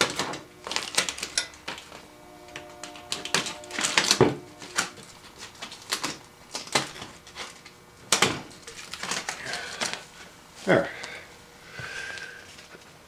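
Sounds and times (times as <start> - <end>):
vinyl film crackling and crinkling: 0.0 - 10.3.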